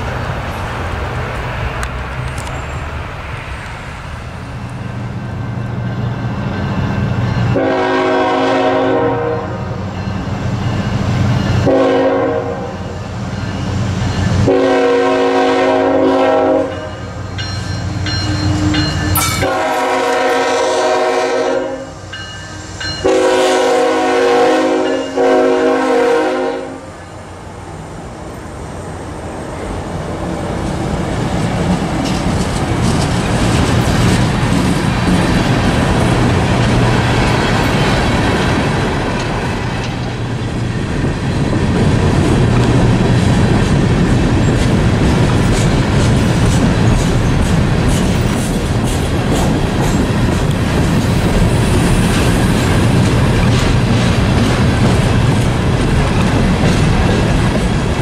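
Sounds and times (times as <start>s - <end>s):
freight train rumbling: 0.0s - 58.0s
locomotive air horn chord: 7.6s - 9.8s, 11.6s - 12.8s, 14.4s - 17.0s, 18.5s - 26.9s.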